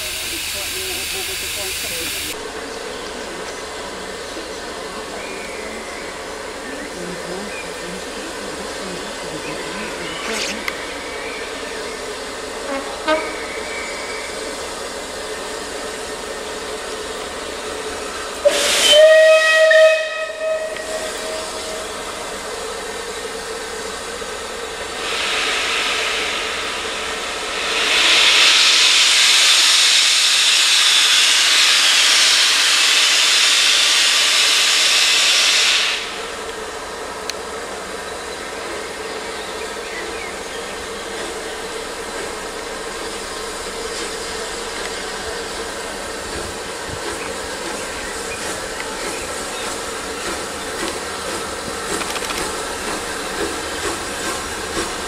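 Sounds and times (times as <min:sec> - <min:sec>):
steam hissing: 0:00.0 - 0:55.0
steam locomotive whistle: 0:12.6 - 0:14.5, 0:18.4 - 0:22.1.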